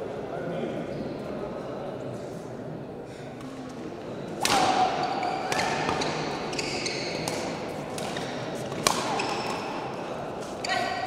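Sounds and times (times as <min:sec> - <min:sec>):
badminton racket hit: 0:04.4 - 0:06.5, 0:07.1 - 0:09.8
shoes squeaking on court floor: 0:05.0 - 0:11.0.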